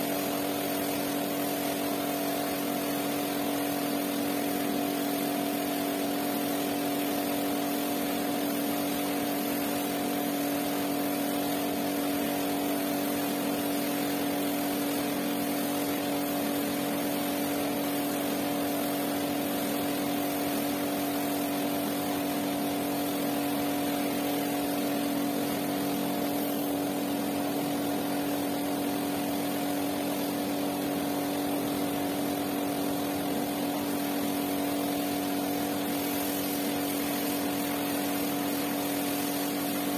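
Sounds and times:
pressure washer motor humming: 0.0s - 39.9s
water jet hissing: 8.1s - 39.9s.

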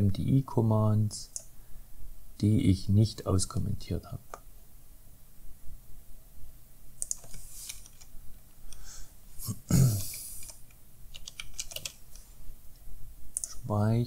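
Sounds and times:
computer keyboard typing: 7.0s - 8.1s, 10.0s - 12.0s, 13.4s - 13.6s.

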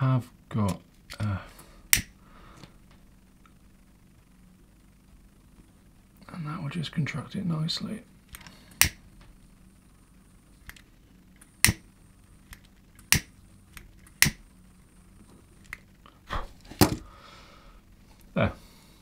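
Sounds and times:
lighter clicking: 1.9s - 2.1s, 8.4s - 9.0s, 11.6s - 11.9s, 13.0s - 14.4s.

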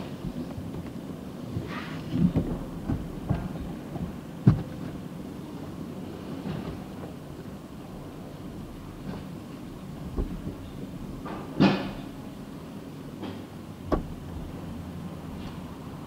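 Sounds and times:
low rumble inside car: 13.7s - 15.4s
sharp thump: 13.9s - 14.2s.

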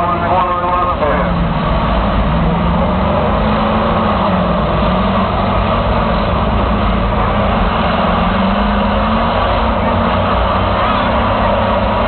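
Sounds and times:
bus engines revving: 0.0s - 12.0s.

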